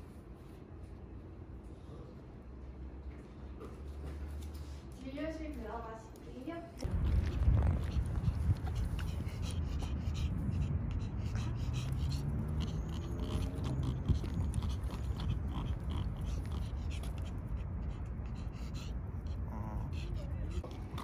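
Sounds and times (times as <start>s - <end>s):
dog rasping breaths: 6.8s - 21.0s
low rumble: 6.8s - 21.0s.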